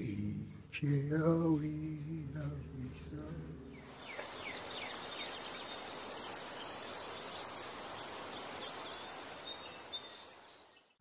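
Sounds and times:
background hiss: 0.0s - 11.0s
faint bird chirps: 3.7s - 11.0s.

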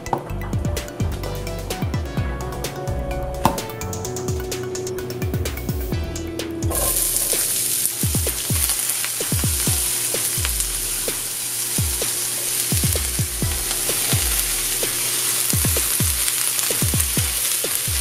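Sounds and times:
vegetables sizzling in hot oil: 6.7s - 18.0s.

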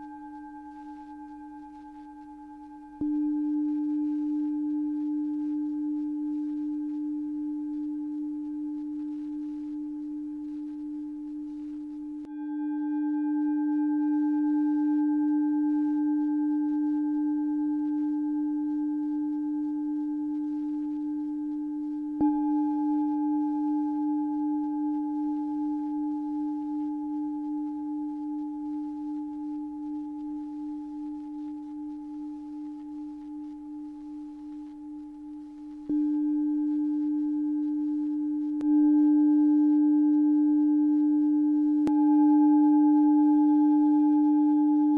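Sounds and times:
singing bowl ringing: 0.0s - 44.9s.

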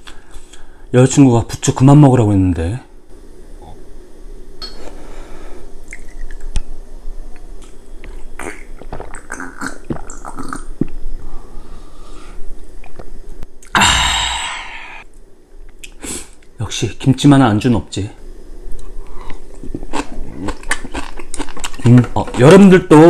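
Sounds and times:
loud breathy exhale: 13.8s - 15.0s
chewing with wet clicks: 18.7s - 22.3s.

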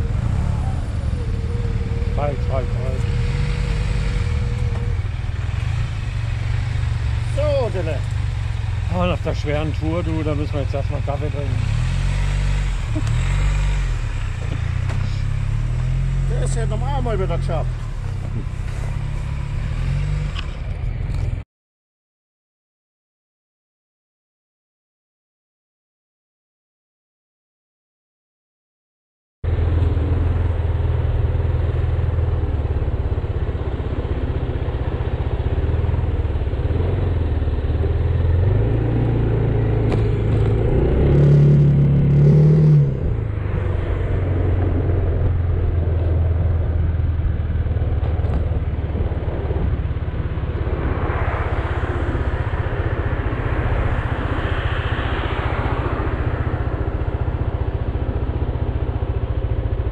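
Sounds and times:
scooter engine revving: 0.0s - 17.0s
wind and road noise: 0.0s - 21.4s, 29.4s - 59.9s.

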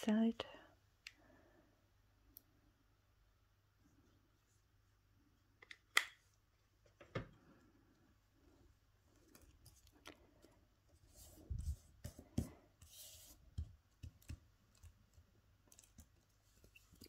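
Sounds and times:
hands rubbing foam sheet: 11.0s - 15.1s.

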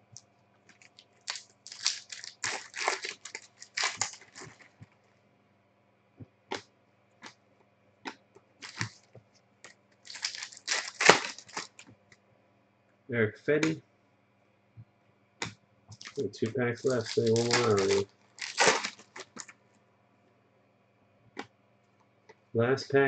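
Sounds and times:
wrappers crinkling and tearing: 0.7s - 4.8s, 8.6s - 9.0s, 10.0s - 11.8s, 16.0s - 16.2s, 16.8s - 19.5s
cards sliding and flipping: 16.1s - 18.0s.

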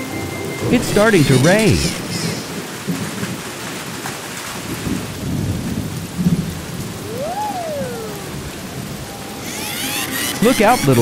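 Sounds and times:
steady rain: 0.0s - 11.0s
rumbling thunder: 2.1s - 7.1s
whistling tone: 7.1s - 8.2s.

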